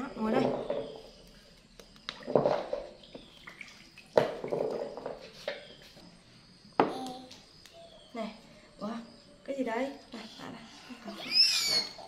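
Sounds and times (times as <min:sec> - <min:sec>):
fruit sloshing in water basin: 0:01.9 - 0:05.7.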